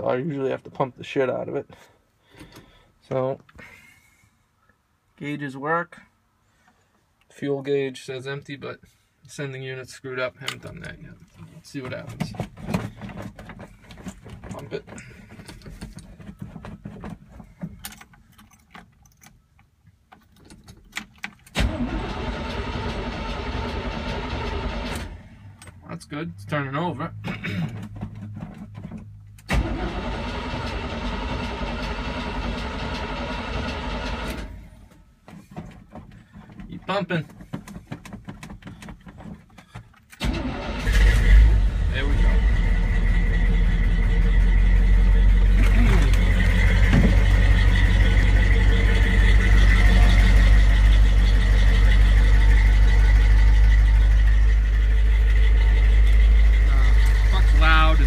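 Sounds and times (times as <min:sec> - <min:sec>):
starter motor cranking: 0:40.2 - 0:58.0
engine running roughly: 0:41.6 - 0:58.0.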